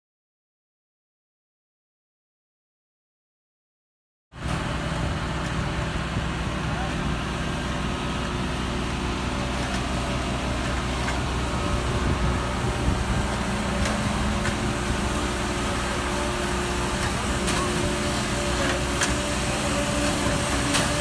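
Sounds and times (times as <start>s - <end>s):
harvesting machinery: 4.4s - 21.0s
tractor engine running: 4.4s - 21.0s.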